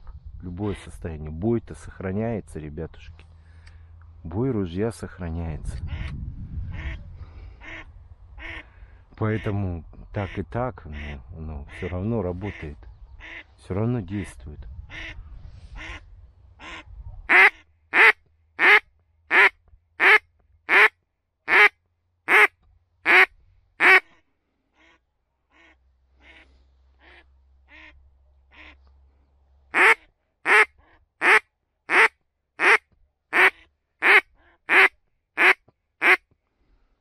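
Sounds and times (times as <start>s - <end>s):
duck quacking: 6.7s - 7.0s, 7.6s - 8.6s, 16.6s - 20.9s, 21.5s - 21.7s, 22.3s - 24.2s, 24.8s - 28.8s, 29.7s - 36.2s.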